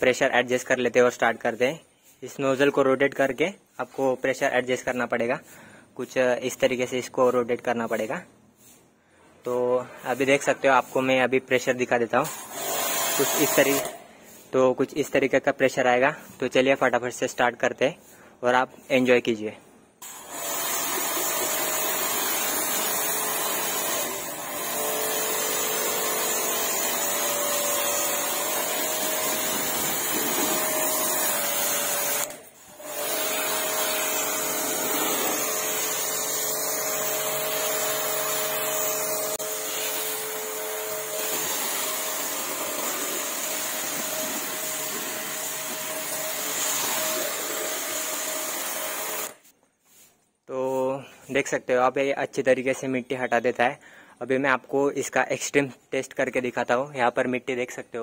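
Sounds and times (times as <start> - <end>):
pressure washer motor humming: 12.2 - 14.0, 20.0 - 49.4
spray hissing on car: 29.5 - 30.6, 41.2 - 49.2.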